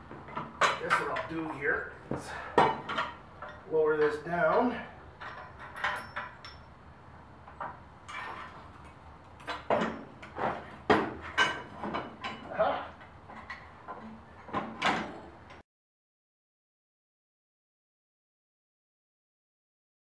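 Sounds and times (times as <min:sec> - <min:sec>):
steel parts clanking: 0:00.3 - 0:01.6, 0:02.4 - 0:06.8, 0:07.5 - 0:15.6.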